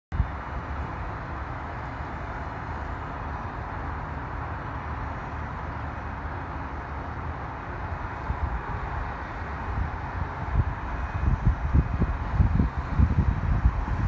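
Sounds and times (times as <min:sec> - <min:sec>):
city buses: 0:00.1 - 0:14.0
road traffic hum: 0:00.1 - 0:14.0
wind rumble on microphone: 0:00.1 - 0:14.0.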